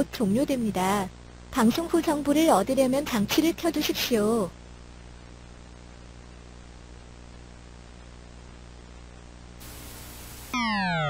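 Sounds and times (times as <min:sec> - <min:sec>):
static hiss: 0:00.0 - 0:10.6
low electrical hum: 0:00.0 - 0:11.0
electronic alert tone: 0:10.5 - 0:11.0.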